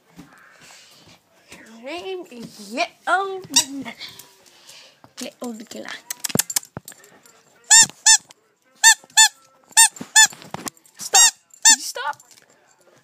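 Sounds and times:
rubber squeaky toy squeaking: 7.7s - 10.4s, 11.0s - 12.0s.

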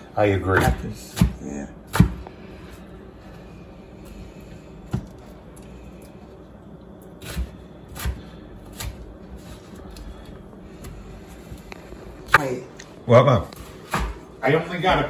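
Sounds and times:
knife slicing peppers: 7.1s - 10.2s.

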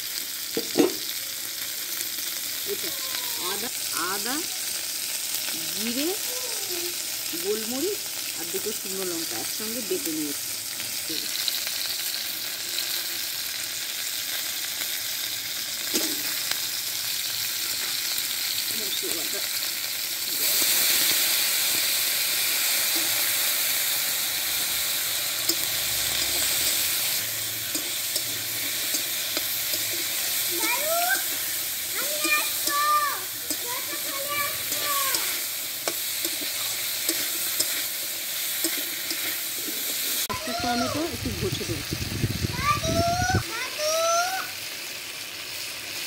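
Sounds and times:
vegetables sizzling in oil: 0.0s - 46.0s
metal spatula stirring: 24.4s - 40.2s.

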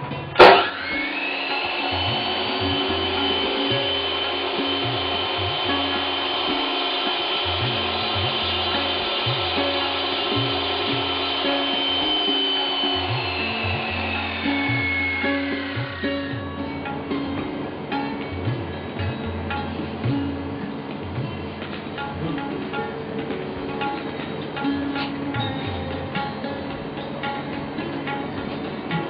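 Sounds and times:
saw grinding through rock: 0.4s - 16.5s.

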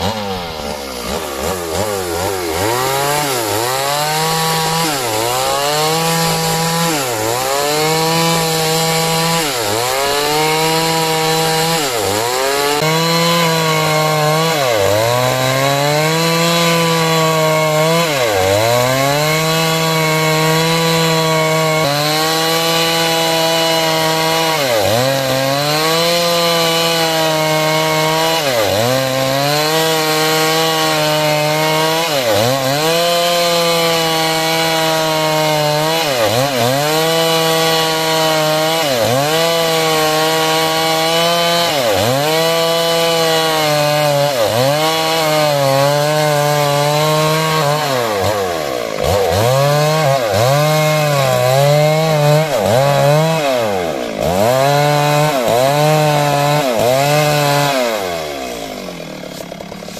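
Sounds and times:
chainsaw cutting timber: 0.0s - 59.9s.

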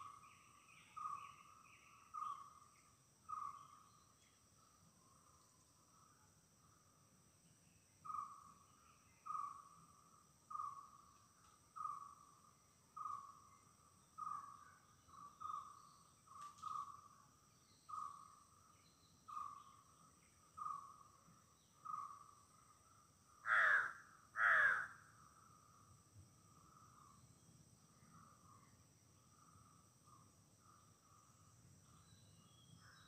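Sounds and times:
high insect drone: 0.0s - 33.0s
harsh caws: 23.4s - 25.0s.

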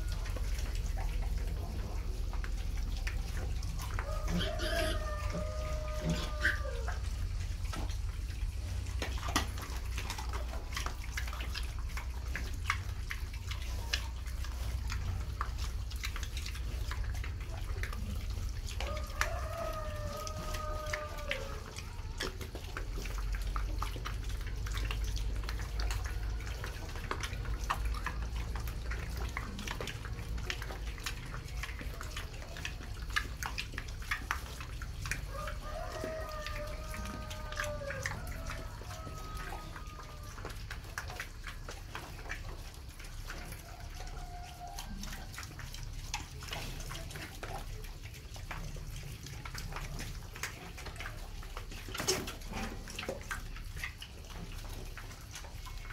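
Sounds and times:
pigs smacking and chewing: 0.0s - 55.9s.

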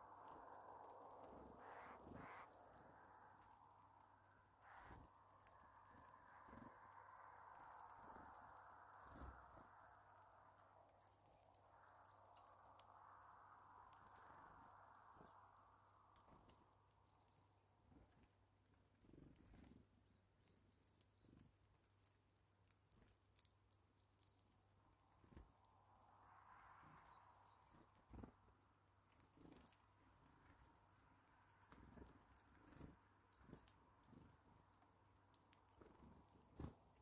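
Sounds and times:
birds pecking and cracking seeds: 0.0s - 37.0s
high bird chirps: 1.6s - 3.2s.

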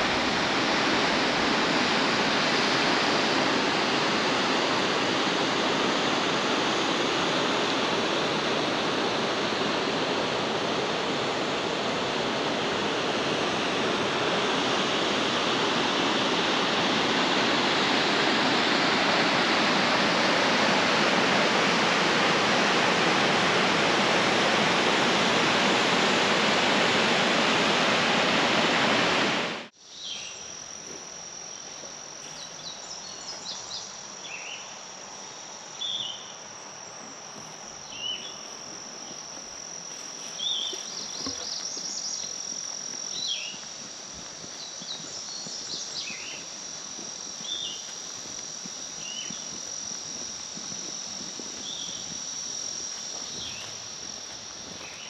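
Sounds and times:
waterfall roaring: 0.0s - 29.7s
insects droning: 0.0s - 55.0s.

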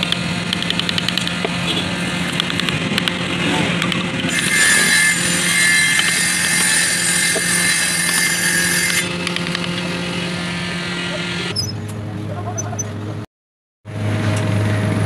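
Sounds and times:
motor running: 0.0s - 13.0s
chisel scraping wood: 3.8s - 9.7s.

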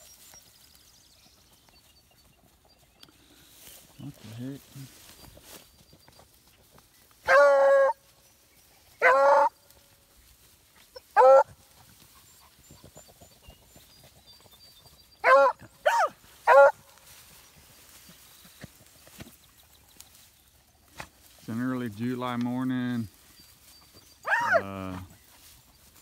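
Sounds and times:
hound baying: 7.2s - 8.1s, 9.0s - 9.7s, 10.8s - 17.1s, 23.8s - 25.9s.

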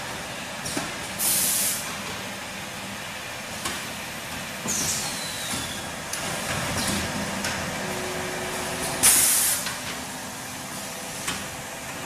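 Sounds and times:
packing machine running: 0.0s - 12.0s
compressed air hiss: 1.2s - 1.9s, 9.0s - 9.8s.

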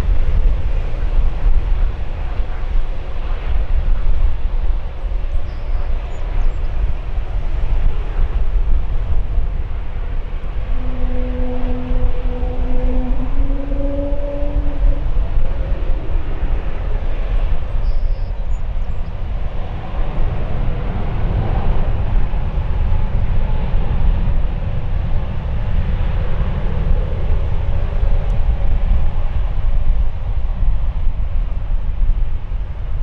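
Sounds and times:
wind buffeting microphone: 0.0s - 33.0s
jet engines running: 14.6s - 33.0s.

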